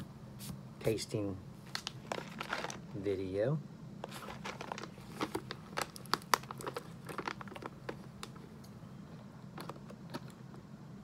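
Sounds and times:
coffee bag crinkling: 0:01.7 - 0:02.9, 0:04.0 - 0:08.5.

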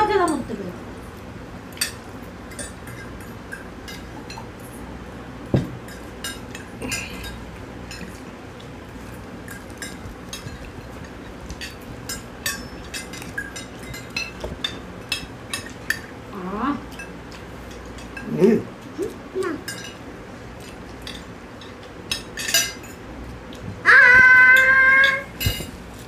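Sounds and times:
cutlery clinking on glass plates: 0:09.5 - 0:16.1, 0:19.6 - 0:20.0, 0:20.6 - 0:23.0, 0:24.6 - 0:25.8.

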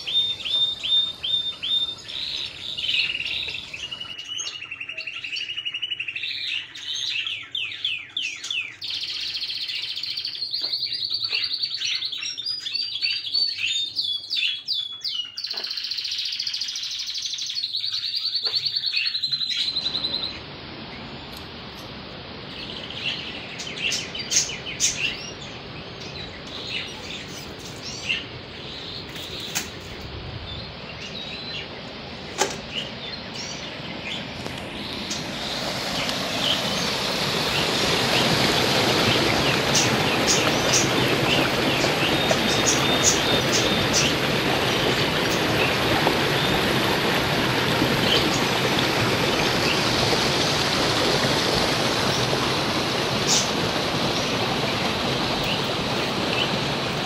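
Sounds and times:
high rapid bird trill: 0:00.0 - 0:21.3, 0:22.5 - 0:47.0
small birds chirping: 0:00.0 - 0:21.9, 0:22.5 - 0:50.2, 0:53.0 - 0:57.0
stream rushing: 0:19.6 - 0:57.0.

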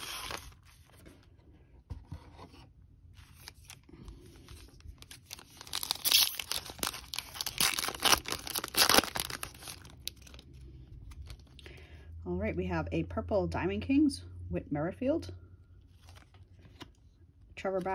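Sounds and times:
foil wrapper tearing and crinkling: 0:00.0 - 0:00.7, 0:03.3 - 0:10.4.

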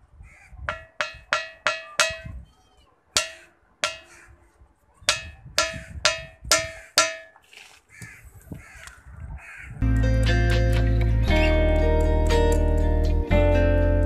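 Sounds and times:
stone striking ringing rock: 0:00.7 - 0:02.4, 0:03.2 - 0:04.3, 0:05.1 - 0:07.4.

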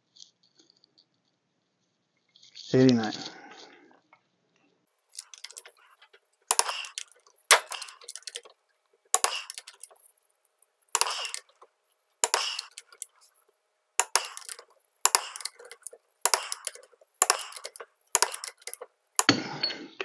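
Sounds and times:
torque wrench clicking: 0:05.1 - 0:08.5, 0:09.2 - 0:10.2, 0:10.8 - 0:11.6, 0:12.2 - 0:13.4, 0:14.0 - 0:19.4.

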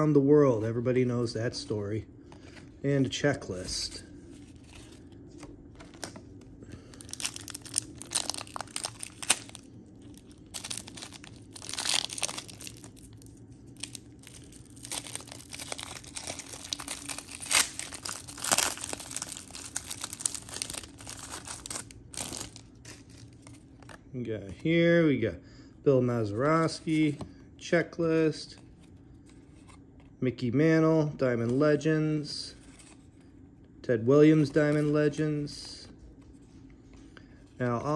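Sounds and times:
wrappers torn and crinkled: 0:06.8 - 0:23.6.

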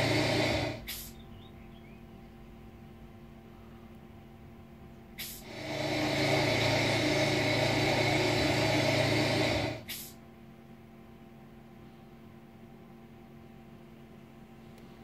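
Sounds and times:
played-back engine noise: 0:00.0 - 0:10.2.

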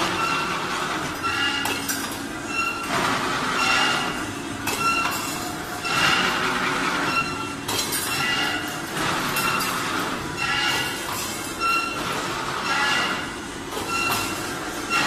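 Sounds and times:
machine rattling clatter: 0:00.0 - 0:15.0
short metallic squeals: 0:00.0 - 0:15.0.

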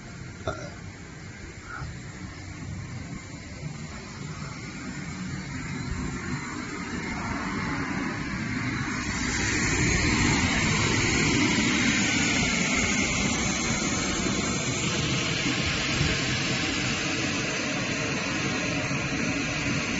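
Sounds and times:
electric air blower running: 0:00.0 - 0:19.9.

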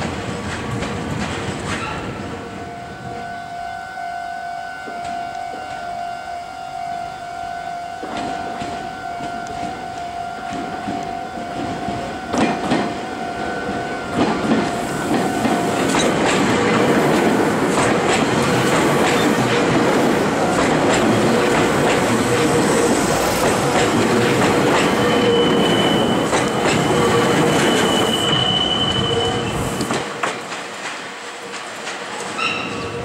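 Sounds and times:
clatter over rail joints: 0:00.0 - 0:02.1, 0:29.8 - 0:33.0
train wheels rushing on rails: 0:00.0 - 0:03.4, 0:07.9 - 0:33.0
high wheel squeal: 0:24.8 - 0:30.0.

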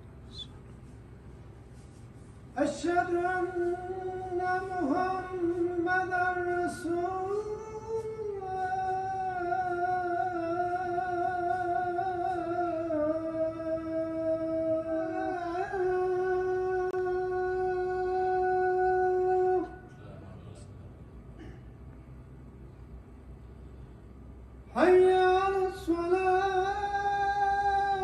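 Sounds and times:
man chanting call to prayer: 0:02.6 - 0:20.5, 0:24.8 - 0:28.0.

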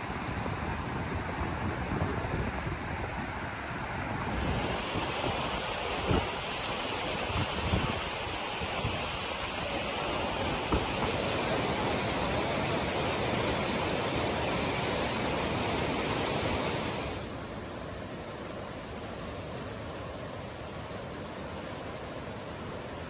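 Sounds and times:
river rushing: 0:00.0 - 0:23.0
wind thumping on microphone: 0:04.1 - 0:17.2.

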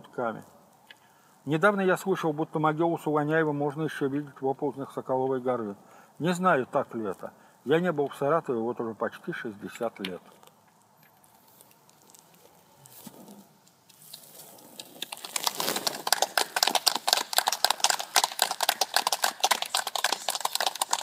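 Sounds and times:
audience clapping: 0:15.0 - 0:21.0.

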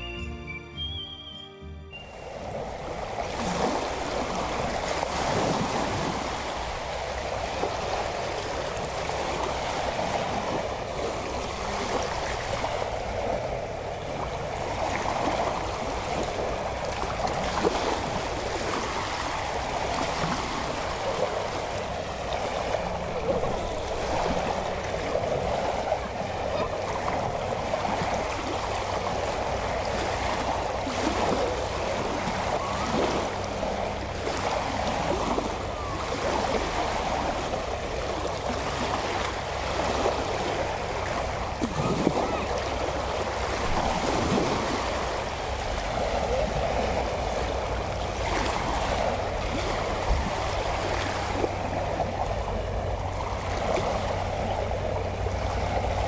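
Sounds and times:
small waves lapping: 0:02.1 - 0:56.0.

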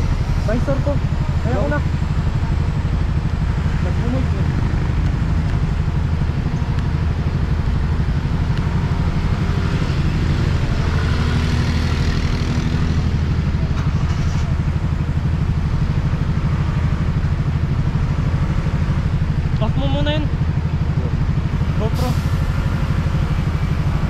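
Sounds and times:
motorcycle passing: 0:00.0 - 0:21.7
motorcycle engine idling: 0:00.0 - 0:24.0.

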